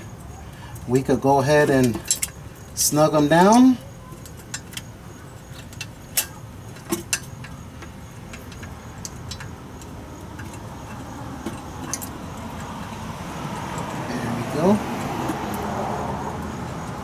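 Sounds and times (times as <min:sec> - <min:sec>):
metallic clicks of bolts and tools: 0:01.8 - 0:02.4.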